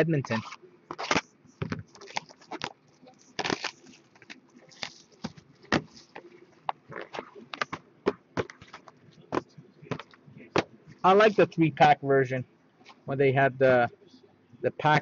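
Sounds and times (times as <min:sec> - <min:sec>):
plastic wrap crinkling and tearing: 0:02.0 - 0:05.2.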